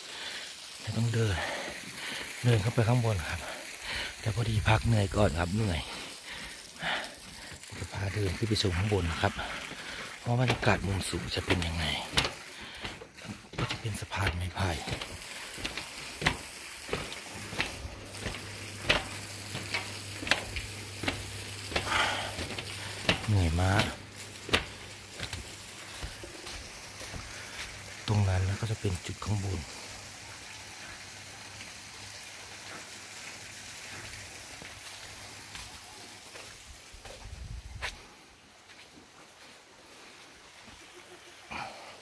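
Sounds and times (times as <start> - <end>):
outdoor background hiss: 0.0 - 42.0
footsteps on bamboo slats: 5.8 - 28.5, 33.9 - 40.9.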